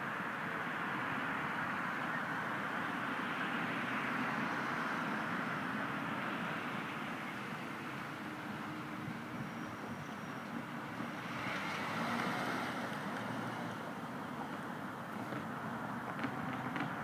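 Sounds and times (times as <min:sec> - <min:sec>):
road traffic noise: 0:00.0 - 0:17.0
car driving past: 0:11.0 - 0:13.9.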